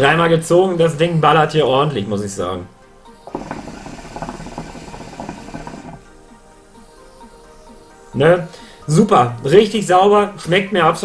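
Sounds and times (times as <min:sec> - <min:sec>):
hookah water bubbling: 0:03.2 - 0:06.2.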